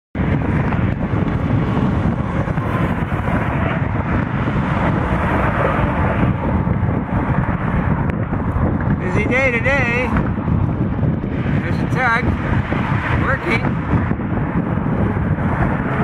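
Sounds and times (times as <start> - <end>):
low rumble: 0.2 - 16.0
wind buffeting microphone: 0.2 - 16.0.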